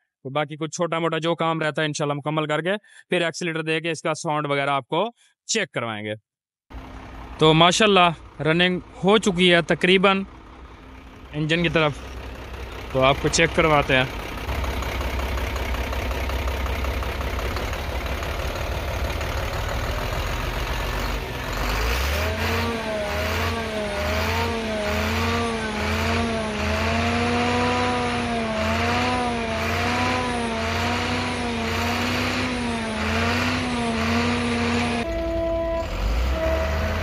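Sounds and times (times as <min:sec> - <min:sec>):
diesel truck engine idling: 0:06.7 - 0:37.0
low pulsing: 0:10.3 - 0:37.0.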